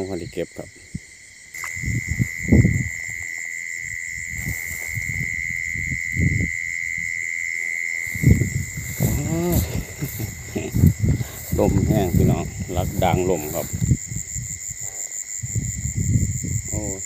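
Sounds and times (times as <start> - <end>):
crickets trilling: 0.0 - 17.0
wind gusting on microphone: 0.0 - 17.0
rustling grass: 0.8 - 15.4
brief voice-like call: 9.0 - 9.9.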